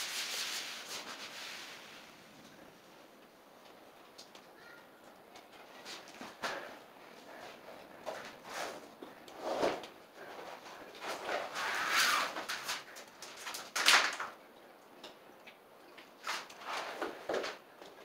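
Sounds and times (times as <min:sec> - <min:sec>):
vinyl flooring scraping on floor: 0:00.0 - 0:02.2, 0:07.3 - 0:13.6, 0:16.2 - 0:17.6.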